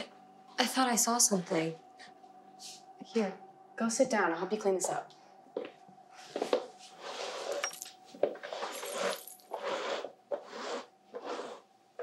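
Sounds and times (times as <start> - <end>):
faint steady hum: 0.0 - 12.0
clinking and scraping on counter: 7.1 - 11.6.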